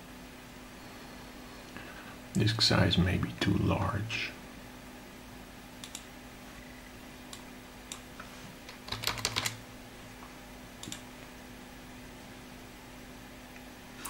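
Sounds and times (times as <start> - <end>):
faint hum: 0.0 - 14.0
mouse clicks: 5.8 - 6.1, 10.8 - 11.0
keyboard keystrokes: 8.7 - 9.6.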